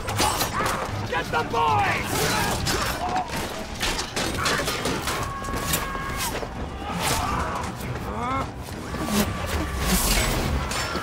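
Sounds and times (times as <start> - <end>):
weapons and shields clashing: 0.0 - 8.0.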